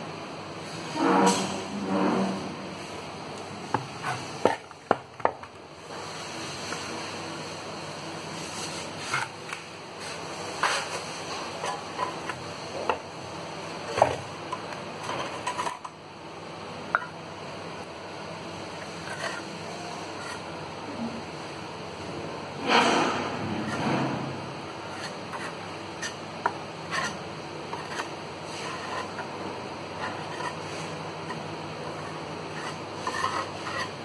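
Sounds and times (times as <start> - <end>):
trowel scraping metal pan: 30.0 - 34.0.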